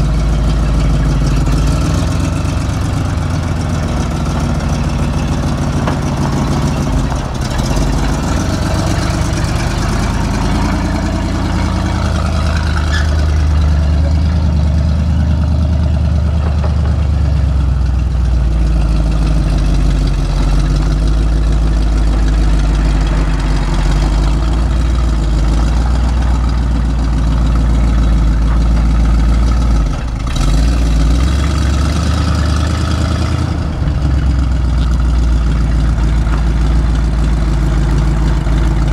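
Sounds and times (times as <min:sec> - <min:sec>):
truck engine droning: 0:00.0 - 0:38.9.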